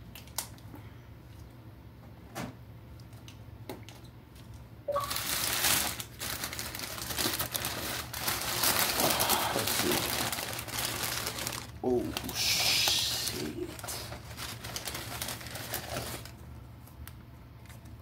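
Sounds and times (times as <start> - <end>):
packing paper crinkling and tearing: 5.0 - 18.0.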